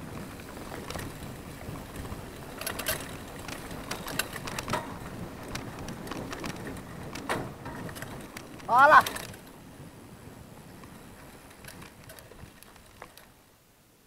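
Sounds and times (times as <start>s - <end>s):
bike clicks and rattles: 0.0s - 13.4s
tyre and wind rush: 0.0s - 13.9s.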